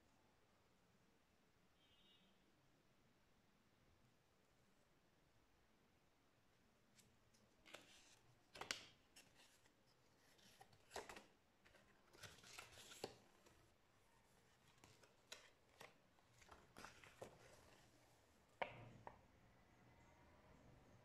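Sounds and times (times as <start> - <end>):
paper rustling and crackling: 7.4 - 18.2.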